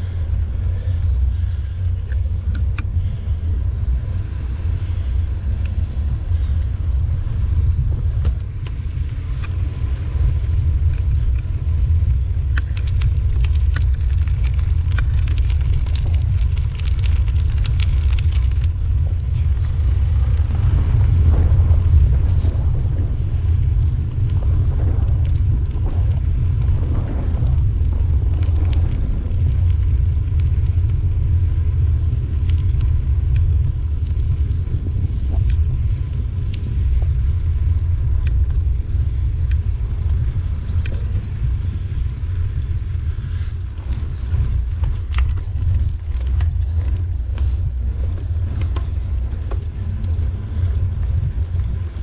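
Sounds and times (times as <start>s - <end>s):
bicycle tyres rolling: 0.0s - 52.0s
wind buffeting microphone: 0.0s - 52.0s
sharp ticks from bike: 4.7s - 20.5s, 28.4s - 34.6s, 35.2s - 52.0s.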